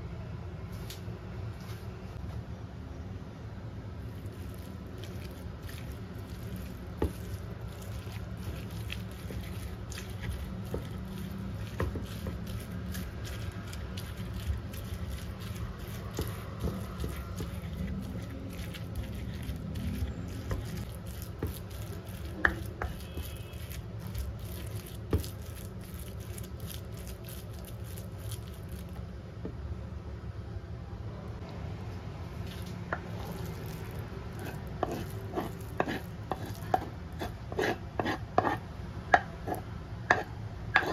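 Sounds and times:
spoon squishing and scraping tofu: 0:04.0 - 0:29.0, 0:32.4 - 0:38.6, 0:39.4 - 0:40.9.

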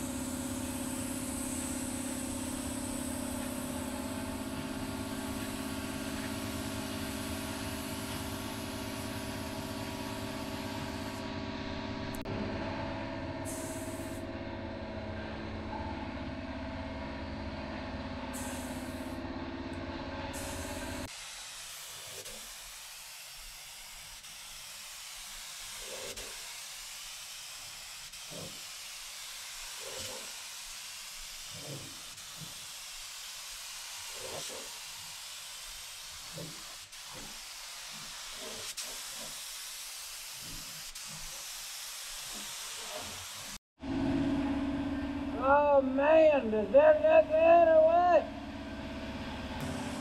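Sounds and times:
spray gun hissing: 0:00.0 - 0:11.2, 0:13.4 - 0:14.2, 0:18.3 - 0:19.2, 0:20.3 - 0:43.6
hum with pitched tones: 0:00.0 - 0:21.1, 0:43.8 - 0:50.0.

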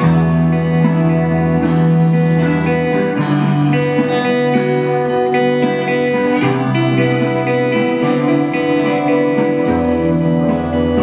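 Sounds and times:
electric guitar notes and chords: 0:00.0 - 0:11.0
low bass line: 0:00.0 - 0:11.0.

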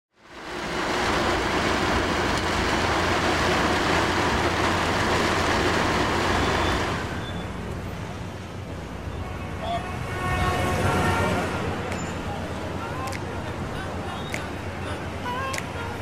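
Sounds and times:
low engine hum: 0:00.2 - 0:09.0
vehicle cabin rush: 0:00.3 - 0:08.1.

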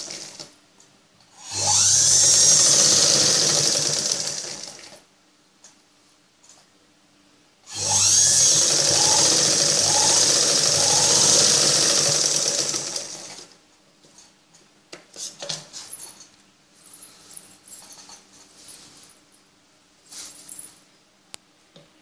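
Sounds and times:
sewing machine stitching: 0:00.0 - 0:00.5, 0:01.4 - 0:05.0, 0:07.7 - 0:13.6.

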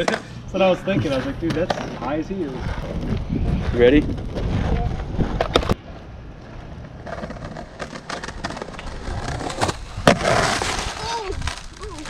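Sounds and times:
skateboard wheels rolling on concrete: 0:00.0 - 0:12.0.

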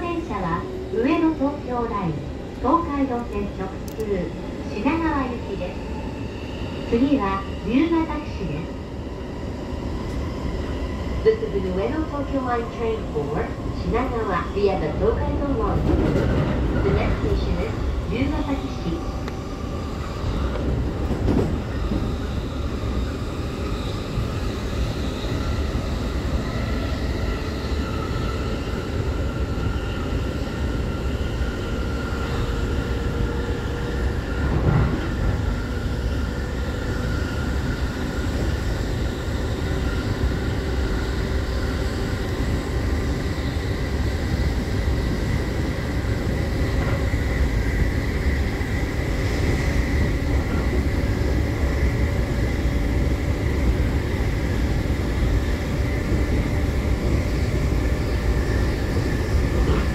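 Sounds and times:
train wheels rumbling on rail: 0:00.0 - 0:59.9.

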